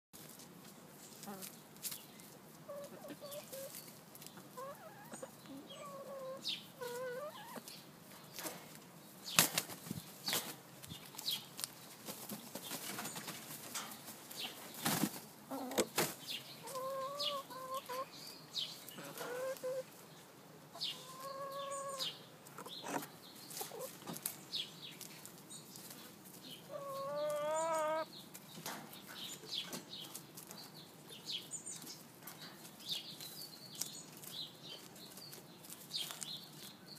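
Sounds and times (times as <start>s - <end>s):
beaks and feet tapping on straw: 0.2s - 18.0s, 20.9s - 36.9s
hens clucking: 2.5s - 8.8s, 12.1s - 18.3s, 18.9s - 24.3s, 26.2s - 28.1s.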